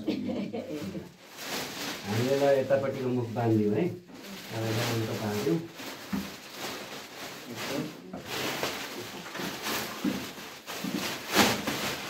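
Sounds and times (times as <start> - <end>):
plastic bags rustling: 0.7 - 12.0.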